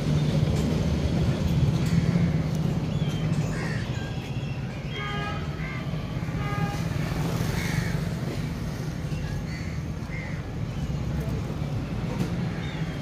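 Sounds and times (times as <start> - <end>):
street traffic rumble: 0.0 - 13.0
birds chirping: 0.1 - 6.3.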